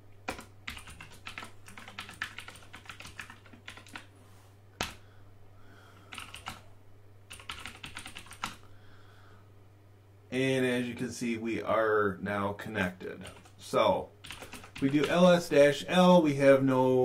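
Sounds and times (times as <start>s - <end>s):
low steady hum: 0.0s - 17.0s
typing on computer keyboard: 0.2s - 4.1s, 4.8s - 5.0s, 6.0s - 6.6s, 7.3s - 8.6s, 13.2s - 13.6s, 14.2s - 15.3s.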